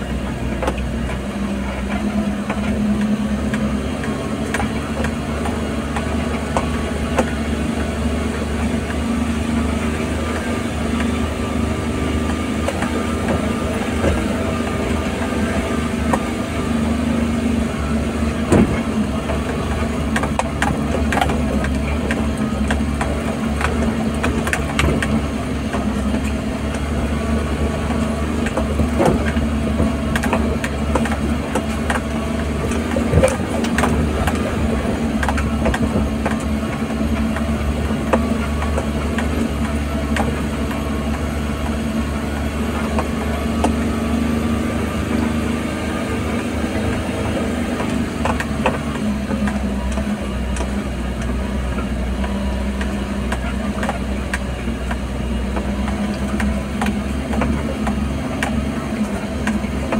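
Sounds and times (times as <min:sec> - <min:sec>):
vehicle engine running: 0:00.0 - 0:59.9
knocks and rattles in cabin: 0:00.3 - 0:59.9.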